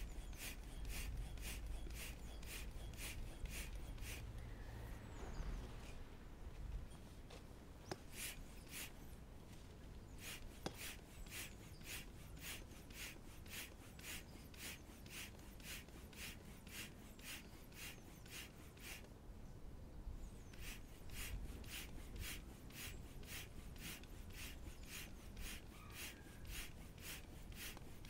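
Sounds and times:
hand pump hissing air: 0.0s - 4.4s, 7.9s - 9.1s, 10.1s - 19.1s, 20.4s - 28.0s.

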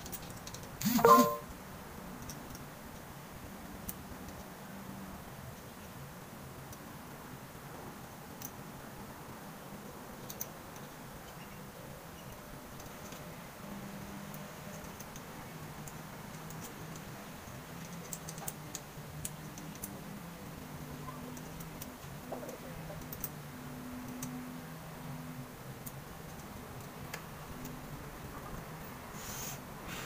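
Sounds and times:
light clicks of small tools: 2.2s - 3.1s, 3.8s - 4.5s, 8.4s - 8.7s, 10.2s - 11.5s, 12.2s - 13.3s, 14.3s - 20.6s, 24.0s - 24.4s.

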